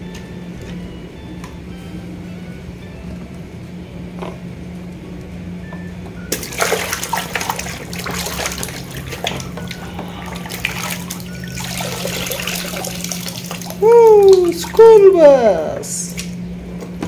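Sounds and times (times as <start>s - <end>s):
low steady hum: 0.0s - 17.0s
toy sloshing in muddy water: 6.4s - 15.0s.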